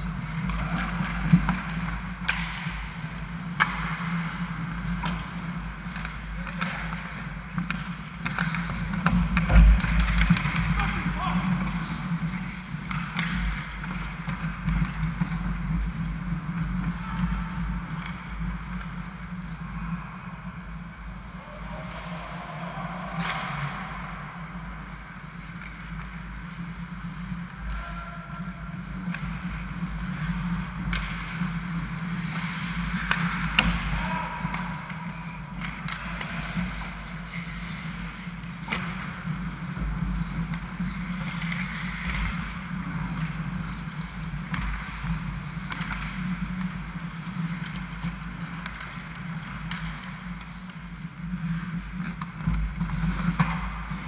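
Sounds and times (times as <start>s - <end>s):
hockey sticks and puck clacking: 0.0s - 54.0s
skates scraping on ice: 0.0s - 54.0s
distant shouts: 21.4s - 24.1s.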